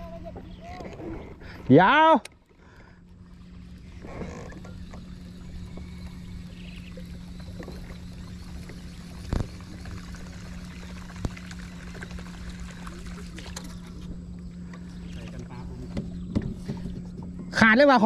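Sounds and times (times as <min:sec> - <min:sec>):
steady low hum: 0:00.0 - 0:18.0
water splashing and dripping: 0:07.2 - 0:14.2
sharp knocks: 0:15.9 - 0:17.3.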